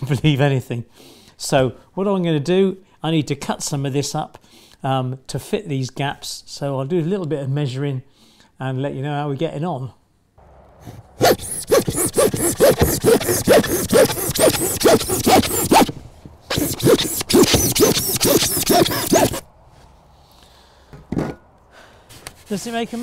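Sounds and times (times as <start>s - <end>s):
hand saw cutting foam board: 10.9s - 19.4s.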